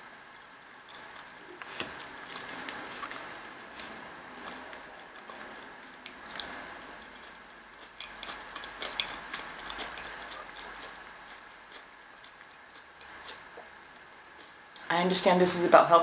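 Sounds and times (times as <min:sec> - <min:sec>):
chewing with wet mouth clicks: 0:00.8 - 0:01.4, 0:02.0 - 0:13.7.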